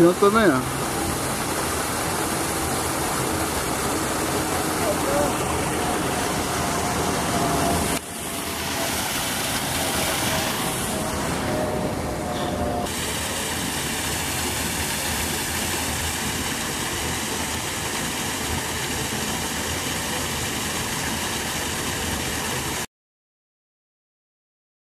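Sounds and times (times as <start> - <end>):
waterfall pouring onto rock: 12.9 - 22.9.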